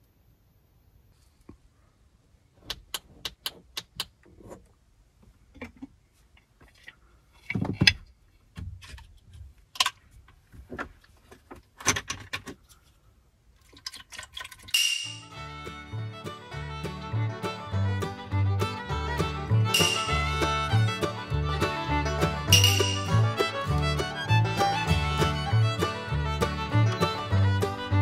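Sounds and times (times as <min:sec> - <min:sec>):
sharp metallic clicks: 0:14.8 - 0:15.3.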